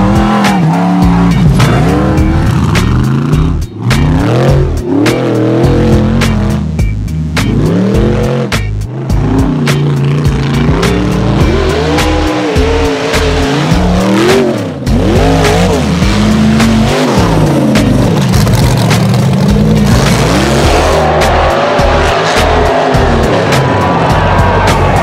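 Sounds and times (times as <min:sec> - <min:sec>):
buggy engine revving hard: 0:00.0 - 0:25.0.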